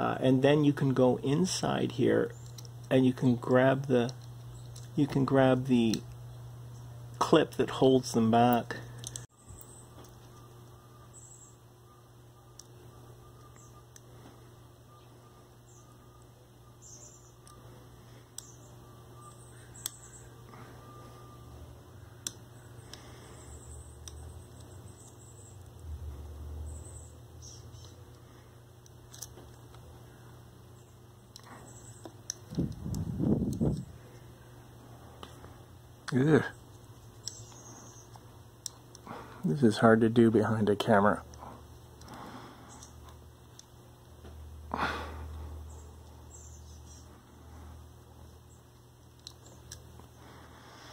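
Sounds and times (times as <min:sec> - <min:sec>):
low steady hum: 0:00.0 - 0:50.9
faint small clicks: 0:49.1 - 0:50.1.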